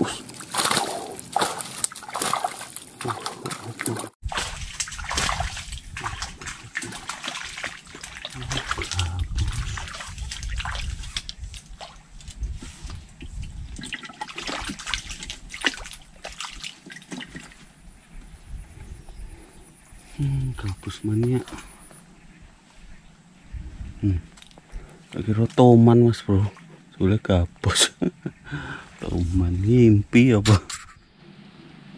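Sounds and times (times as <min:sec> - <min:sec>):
fish thrashing water: 0:00.2 - 0:12.2, 0:13.7 - 0:17.7.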